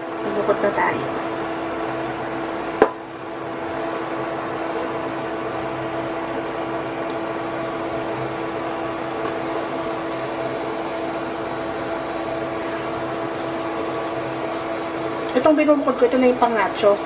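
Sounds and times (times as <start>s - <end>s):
steady mechanical hum: 0.0s - 17.0s
food sizzling in oil: 7.4s - 17.0s.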